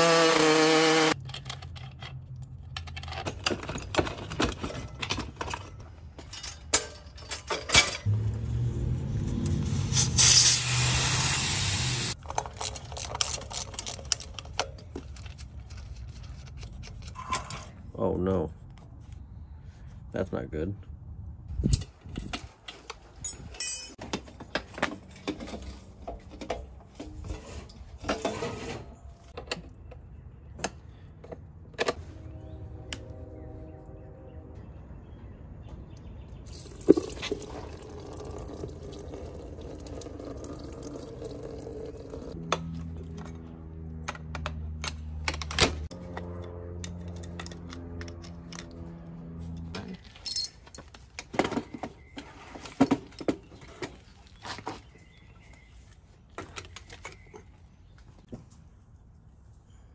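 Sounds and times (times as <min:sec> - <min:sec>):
metal tools clinking: 0:01.2 - 0:08.1, 0:12.1 - 0:17.9, 0:21.6 - 0:24.0, 0:49.6 - 0:53.9
liquid draining into plastic jug: 0:36.6 - 0:42.3.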